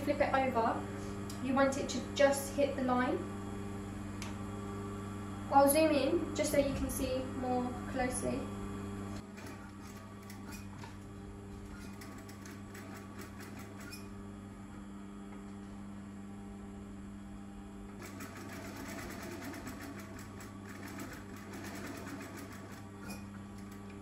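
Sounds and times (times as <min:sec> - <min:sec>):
sewing machine motor humming: 0:09.1 - 0:14.1, 0:17.9 - 0:24.0.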